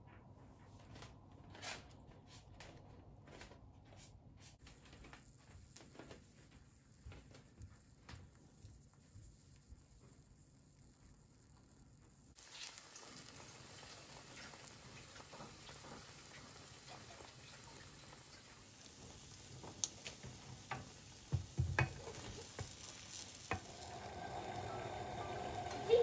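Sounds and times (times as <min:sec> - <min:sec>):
bread sizzling in a pan: 0:05.2 - 0:26.0.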